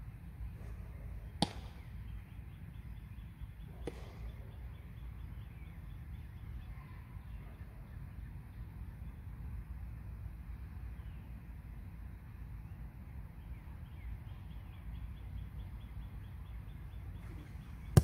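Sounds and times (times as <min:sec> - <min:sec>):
baseball popping into leather glove: 0:01.3 - 0:01.8, 0:17.3 - 0:18.0.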